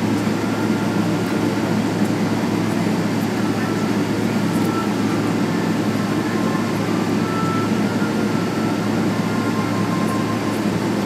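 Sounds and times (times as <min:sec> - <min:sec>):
faint high whining tones: 0:00.0 - 0:11.0
jet engines low rumble: 0:00.0 - 0:11.0.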